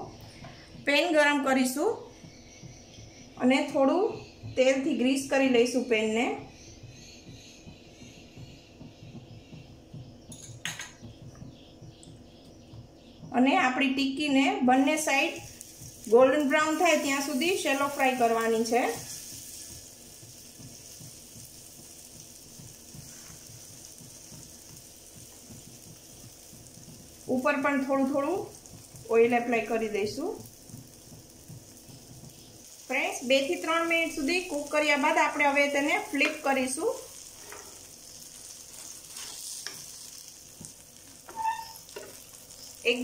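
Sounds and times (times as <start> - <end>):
food frying in oil: 0.0 - 43.0
spatula scraping a pan: 22.9 - 24.3, 37.1 - 42.8.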